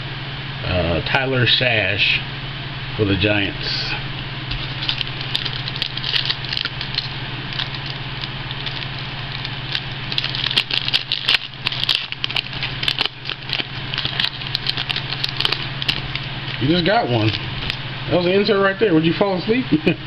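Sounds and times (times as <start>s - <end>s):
steady low hum: 0.0s - 20.0s
foil wrapper crinkling: 4.5s - 18.3s.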